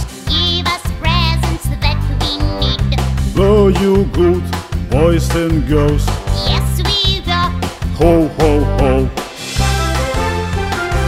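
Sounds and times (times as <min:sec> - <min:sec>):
steady bass line: 0:00.0 - 0:11.0
person singing with vibrato: 0:02.3 - 0:09.3.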